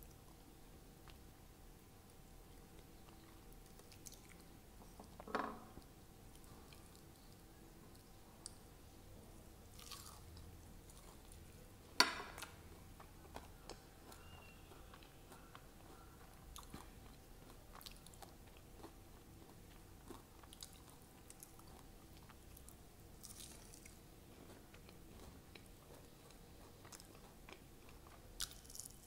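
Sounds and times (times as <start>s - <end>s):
crunchy chewing: 9.7s - 11.5s, 12.3s - 29.0s.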